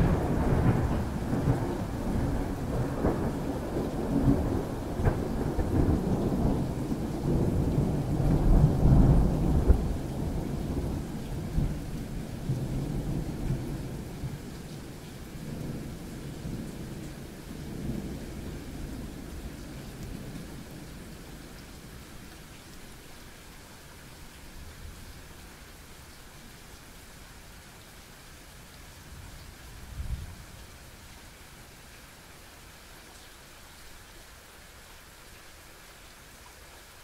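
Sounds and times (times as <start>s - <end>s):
sharp thunder cracks: 0.0s - 6.6s, 7.2s - 10.9s
thunder rumbling: 0.0s - 14.5s
steady rain: 0.0s - 37.0s.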